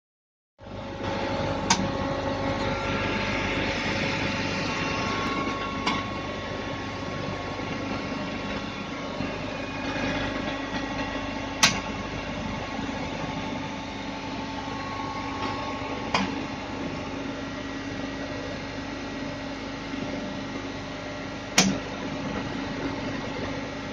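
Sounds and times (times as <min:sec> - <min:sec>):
electrical machine hum: 0:00.6 - 0:23.9.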